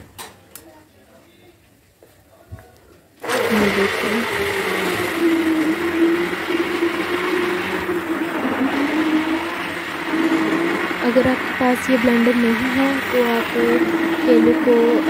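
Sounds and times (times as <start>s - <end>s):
electric hand blender running: 3.2s - 15.0s.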